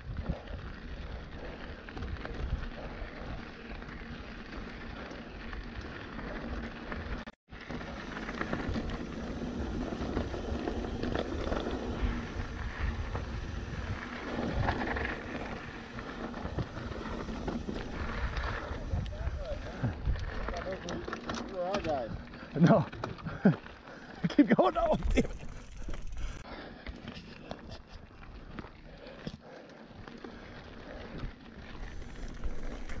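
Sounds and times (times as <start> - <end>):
tyres rattling on dirt trail: 0.0 - 33.0
wind buffeting microphone: 8.6 - 20.6.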